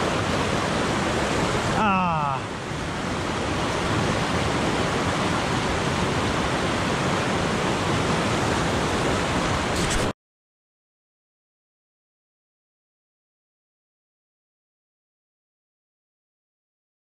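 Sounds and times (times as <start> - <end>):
creek rushing through rapids: 0.0 - 10.1.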